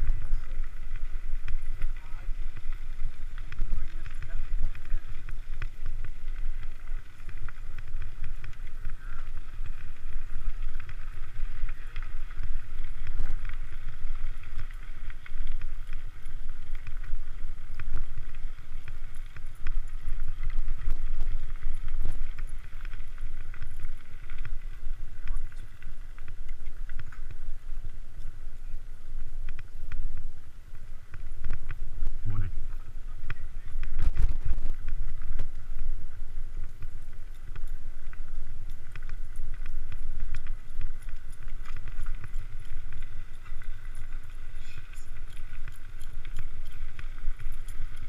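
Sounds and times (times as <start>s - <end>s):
wind rumble on microphone: 0.0s - 48.0s
bike rattling clicks: 36.6s - 48.0s.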